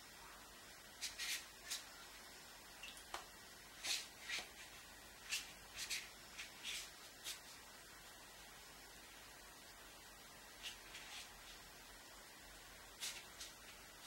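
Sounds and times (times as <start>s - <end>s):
paintbrush swishing on paper: 0.9s - 2.0s, 3.7s - 7.7s, 10.5s - 11.7s, 12.9s - 14.0s.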